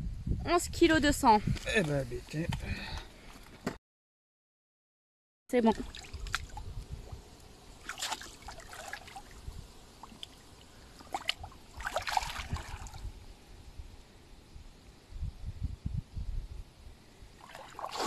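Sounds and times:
water splashing and trickling: 5.5 - 13.3, 17.3 - 18.0.

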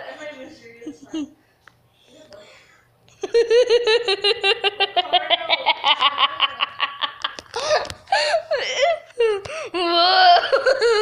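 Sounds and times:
person giggling: 3.1 - 9.1.

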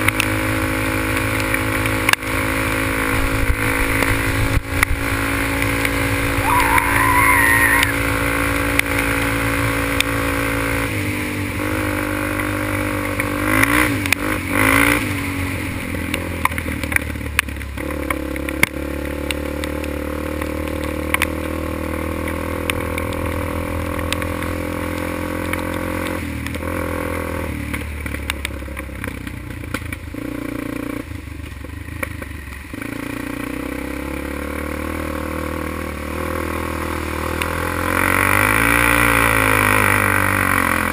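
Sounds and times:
quad engine revving: 0.0 - 16.4, 32.8 - 40.9.

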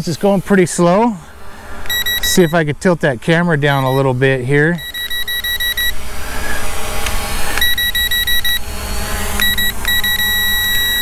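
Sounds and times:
remote controller warning beeps: 1.9 - 2.7, 3.7 - 4.2, 4.8 - 6.0, 7.6 - 8.7, 9.4 - 11.0.

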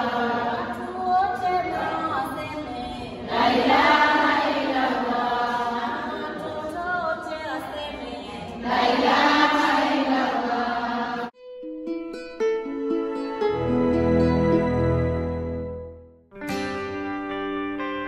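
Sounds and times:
group singing in unison: 0.0 - 2.4, 3.1 - 11.3.

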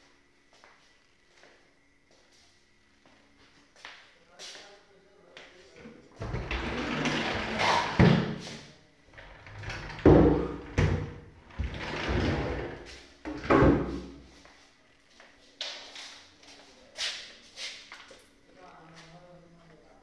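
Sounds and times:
drawers sliding on runners: 6.2 - 8.3
drawers knocking shut: 9.6 - 12.7, 13.3 - 14.1.

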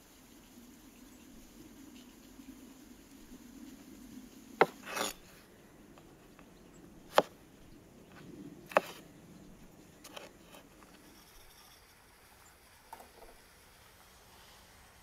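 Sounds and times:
cleaver knocking on cutting board: 4.6 - 5.1.

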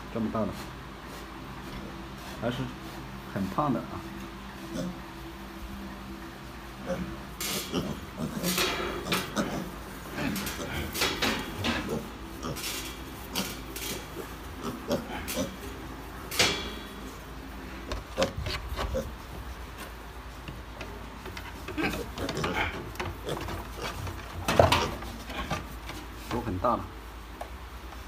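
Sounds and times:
piglets grunting: 4.6 - 5.2, 6.8 - 17.1, 17.7 - 19.6, 21.5 - 25.8
piglets knocking against bars: 8.4 - 9.6, 16.3 - 17.0.

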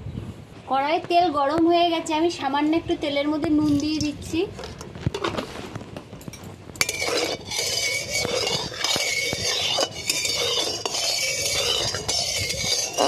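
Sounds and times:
metal spatula scraping a pan: 3.7 - 5.6, 6.3 - 13.0.

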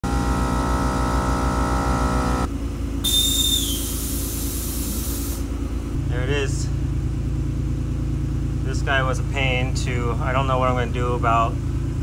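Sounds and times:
air compressor humming: 0.0 - 10.9
air hissing with high whistle: 3.0 - 5.5.

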